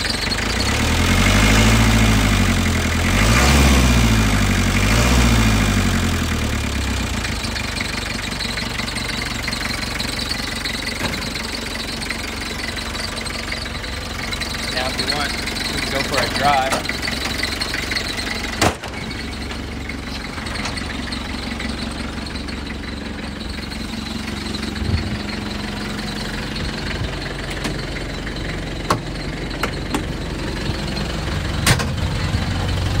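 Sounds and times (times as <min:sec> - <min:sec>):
engine idling: 0:00.0 - 0:33.0
sharp knocks and clicks: 0:28.9 - 0:30.1.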